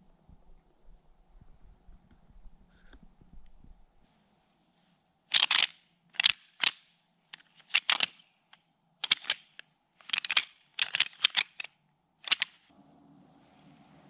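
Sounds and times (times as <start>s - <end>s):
hard objects clicking and clacking: 5.3s - 12.7s.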